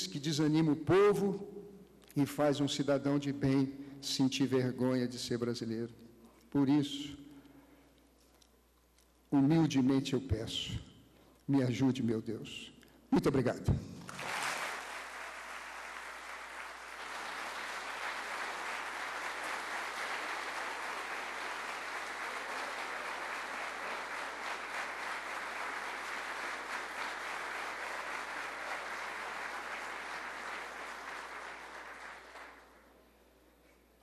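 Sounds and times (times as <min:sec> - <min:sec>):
audience applauding: 0:14.1 - 0:32.8.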